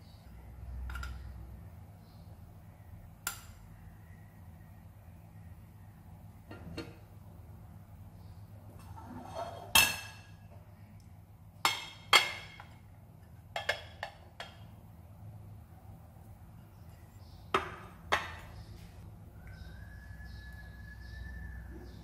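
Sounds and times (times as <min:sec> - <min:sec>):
ceramic dishes clinking: 0:08.8 - 0:10.5.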